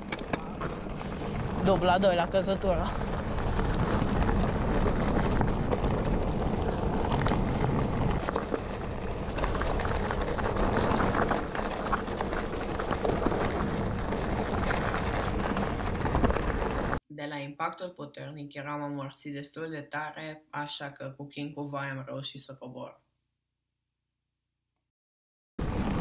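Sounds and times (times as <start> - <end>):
bike clattering over stones: 0.0 - 17.0
bike rushing downhill: 0.0 - 17.0.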